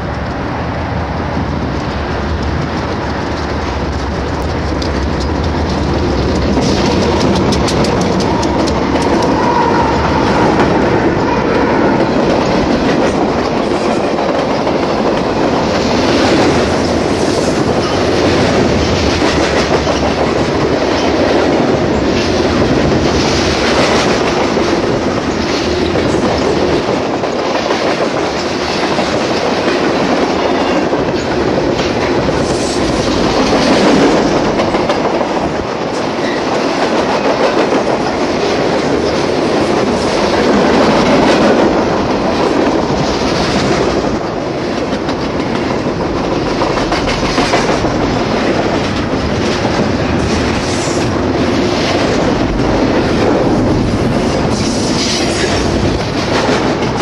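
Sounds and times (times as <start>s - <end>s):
freight train rumbling and rattling: 0.0s - 57.0s
wheels clicking over rail joints: 1.8s - 10.8s.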